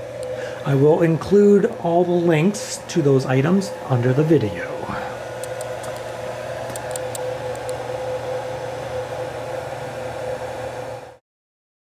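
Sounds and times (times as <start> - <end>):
machine hum with high tone: 0.0 - 11.2.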